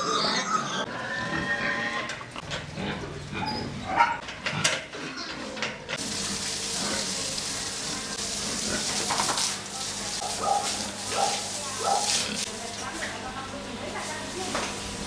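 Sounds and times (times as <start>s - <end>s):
pigs grunting: 0.0s - 6.0s.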